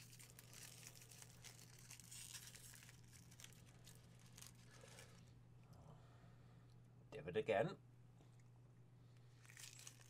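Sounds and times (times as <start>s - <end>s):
wrapper crinkling: 0.0s - 5.3s, 9.4s - 10.0s.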